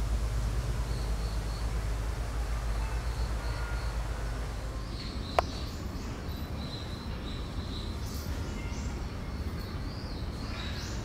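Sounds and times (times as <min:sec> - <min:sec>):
steady low rumble: 0:00.0 - 0:08.1.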